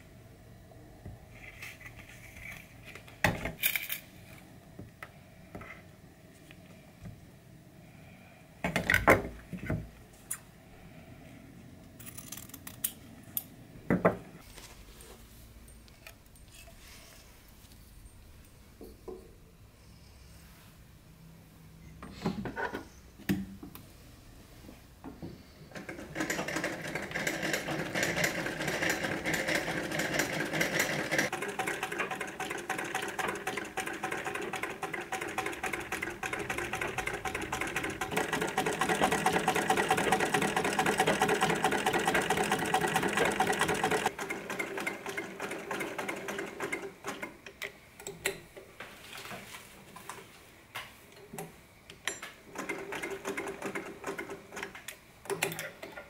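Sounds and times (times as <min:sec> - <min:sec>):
sewing machine rapid ticking: 0:26.1 - 0:47.3.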